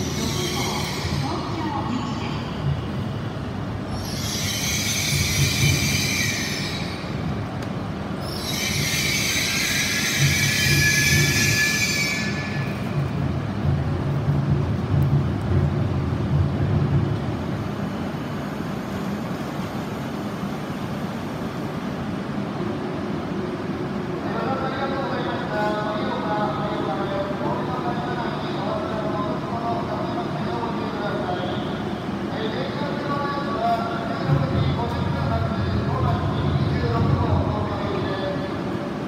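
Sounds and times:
train brakes squealing: 0.0 - 2.6, 3.9 - 7.4, 8.2 - 13.0
low rumble of train: 0.0 - 39.0
standing train humming: 0.0 - 39.0.

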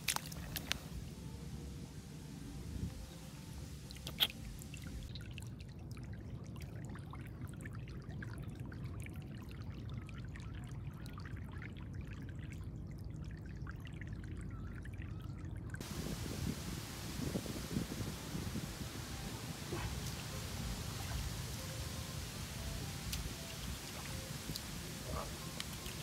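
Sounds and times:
floodwater trickling and gurgling: 0.0 - 26.0.

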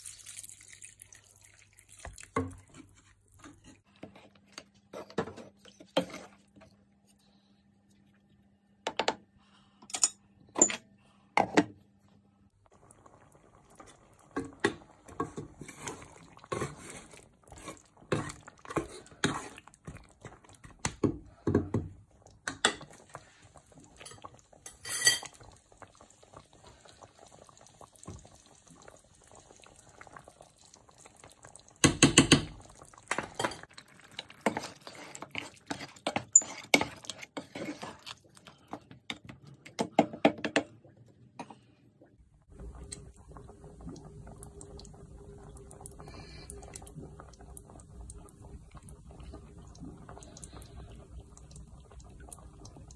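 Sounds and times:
spoon scraping cooking pot: 15.1 - 20.0, 34.3 - 38.2.

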